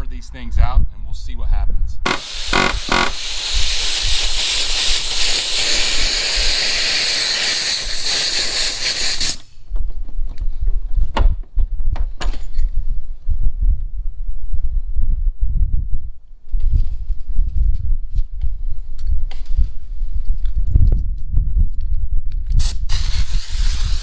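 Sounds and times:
wind on microphone: 0.0s - 24.0s
pneumatic air hammer hissing: 2.1s - 9.6s, 22.6s - 24.0s.

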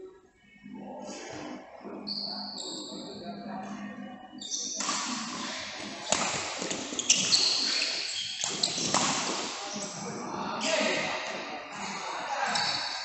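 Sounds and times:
shoes squeaking on court: 1.4s - 3.2s, 4.4s - 9.9s, 12.5s - 13.0s
racket hitting shuttlecock: 4.8s - 9.6s.

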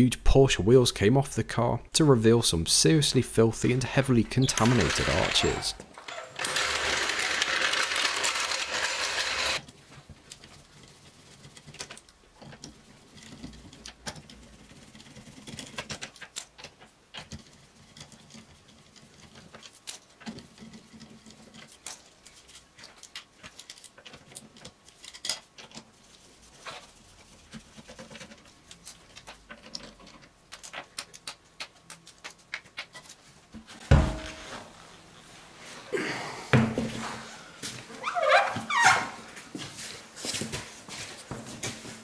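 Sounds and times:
trolley jack rolling on concrete: 4.5s - 9.6s.

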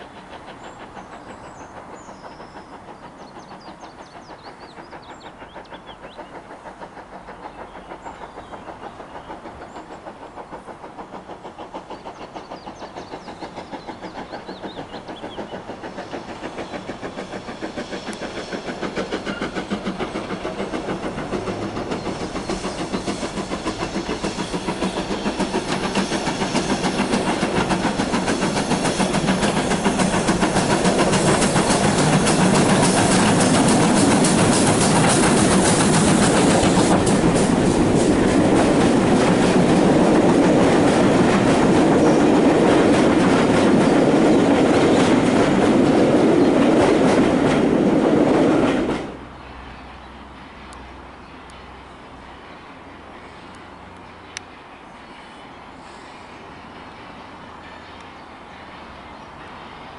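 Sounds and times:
steam locomotive chuffing: 0.0s - 59.9s.

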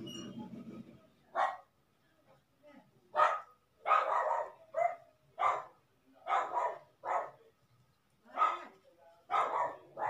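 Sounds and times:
dog barking: 1.3s - 1.7s, 3.2s - 7.4s, 8.3s - 8.7s, 9.3s - 10.0s.

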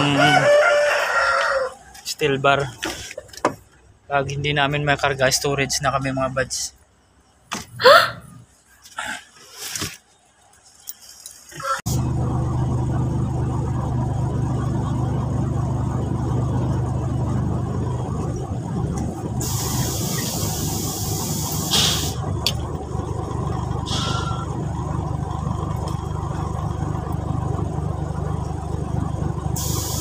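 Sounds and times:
diesel engine idling: 11.9s - 30.0s
long air hiss: 19.4s - 22.2s, 29.6s - 30.0s.

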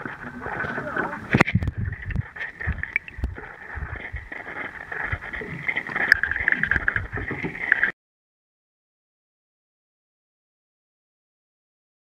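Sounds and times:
water sloshing underwater: 0.0s - 7.9s.

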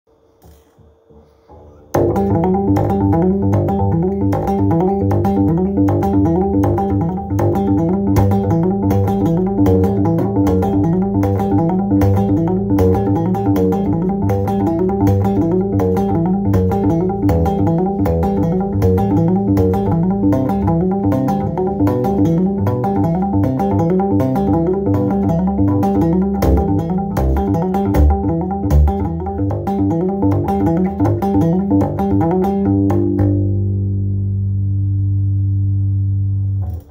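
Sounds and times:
electric bass guitar plucked notes: 1.5s - 36.9s.

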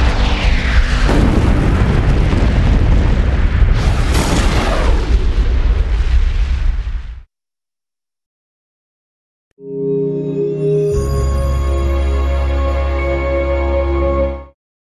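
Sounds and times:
rushing whooshes: 0.0s - 5.2s
deep explosion blast: 0.0s - 7.3s.

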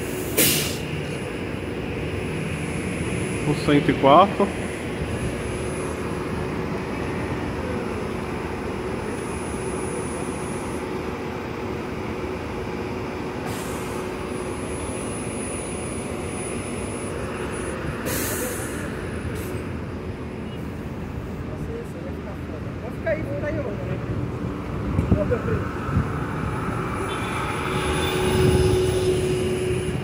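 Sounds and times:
air brake hisses: 0.0s - 0.9s, 13.4s - 14.0s, 18.0s - 19.6s
traffic din: 0.0s - 30.0s.

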